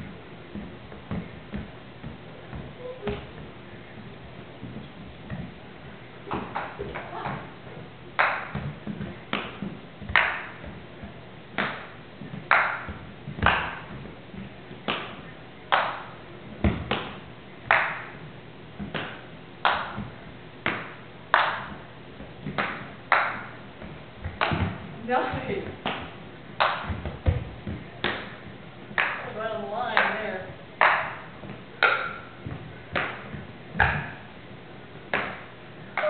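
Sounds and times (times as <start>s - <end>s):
ping-pong ball bouncing: 8.2s - 10.7s, 12.5s - 14.0s, 30.8s - 34.2s, 35.1s - 36.0s.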